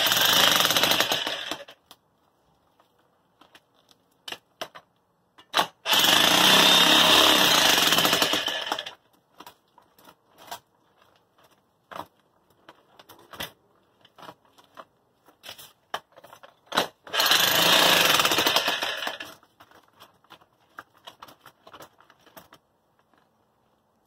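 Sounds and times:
jackhammer hammering concrete: 0:00.0 - 0:01.7, 0:05.9 - 0:08.9, 0:17.1 - 0:19.2.

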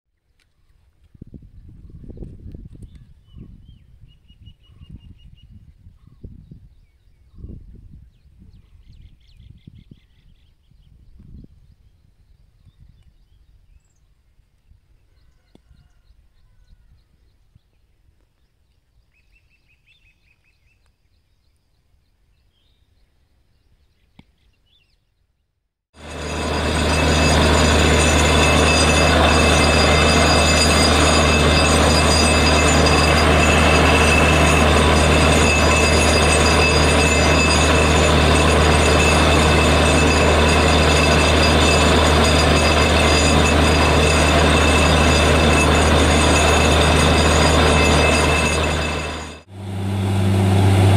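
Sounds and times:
drilling rig running: 0:26.0 - 0:50.9.

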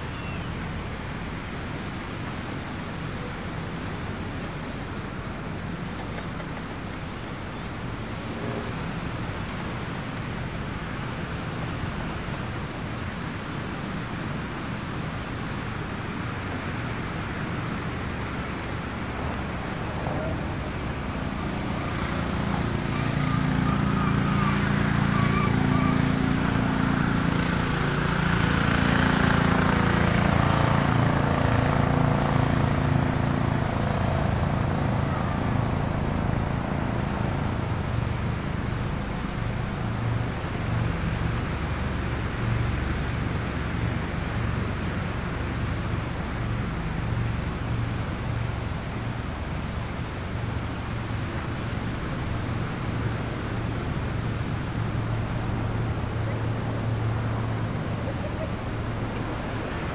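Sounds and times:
wind and road noise: 0:00.0 - 0:59.9
vehicle engine passing by: 0:17.7 - 0:59.9.

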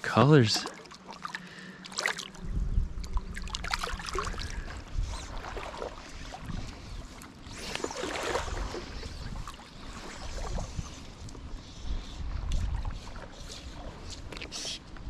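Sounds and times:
water sloshing and splashing: 0:00.0 - 0:14.9
wind rumble on microphone: 0:02.3 - 0:15.0.

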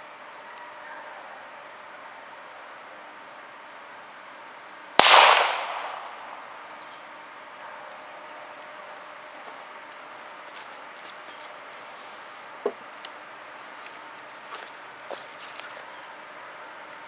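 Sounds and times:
pistol shot with echo: 0:05.0 - 0:06.5.

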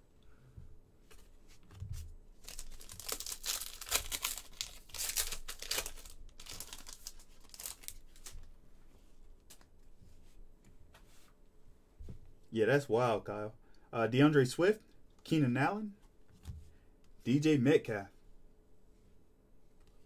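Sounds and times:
foil wrapper tearing and crinkling: 0:02.4 - 0:08.5.

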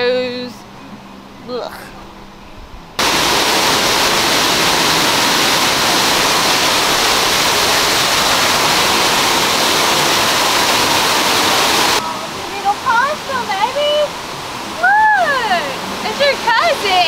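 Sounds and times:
waterfall rushing over rocks: 0:03.0 - 0:17.0.

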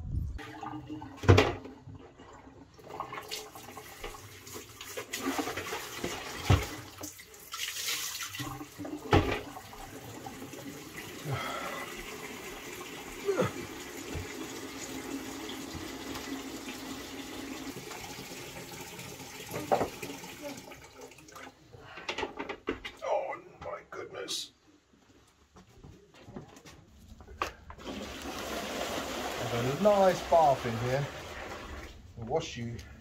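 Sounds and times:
tap running into plastic bucket: 0:14.0 - 0:16.9, 0:27.8 - 0:29.5.

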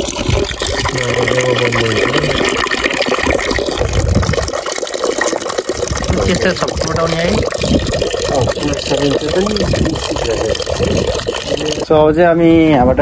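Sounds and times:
water rushing: 0:00.0 - 0:11.9.

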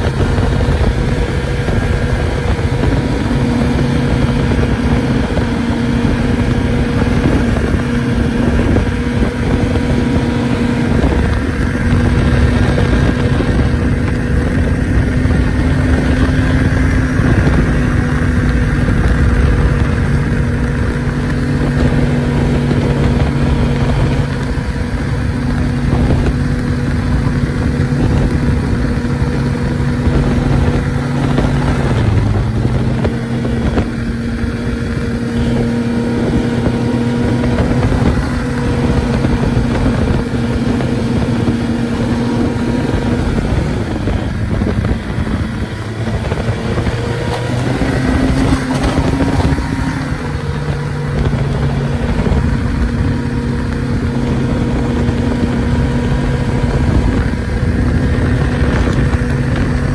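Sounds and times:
snowmobile engine running: 0:00.0 - 0:59.9.

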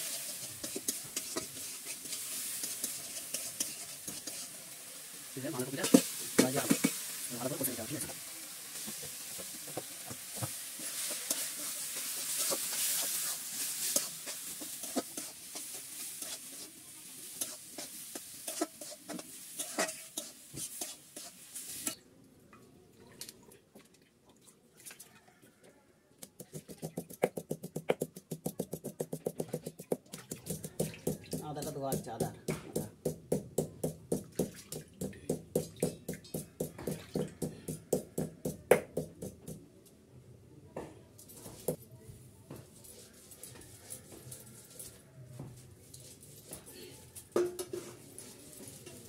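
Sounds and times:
metal spatula scraping pan: 0:00.0 - 0:04.7, 0:05.4 - 0:22.0
food sizzling in oil: 0:00.0 - 0:22.0, 0:26.5 - 0:39.5, 0:45.9 - 0:49.0.

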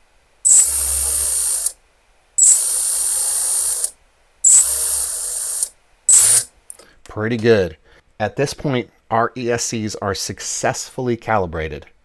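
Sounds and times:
drone motors whirring: 0:00.5 - 0:01.7, 0:02.4 - 0:03.9, 0:04.5 - 0:06.5.

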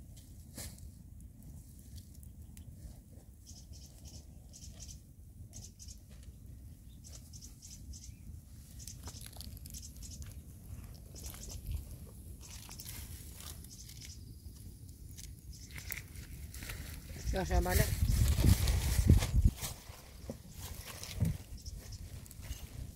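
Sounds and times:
greens crackling and rustling: 0:06.9 - 0:22.9.

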